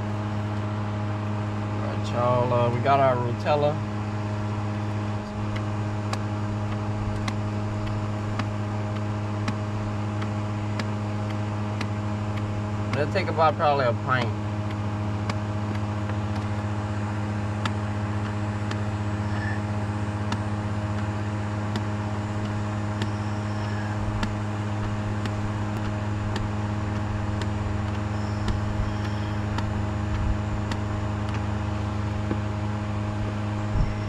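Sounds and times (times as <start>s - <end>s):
steady machine hum: 0.0s - 34.0s
faint regular ticks: 5.5s - 9.6s, 21.7s - 31.5s.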